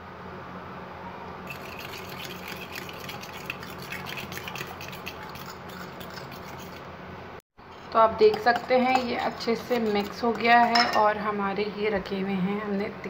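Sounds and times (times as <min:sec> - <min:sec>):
fork scraping glass bowl: 0:01.5 - 0:06.9, 0:07.7 - 0:11.1.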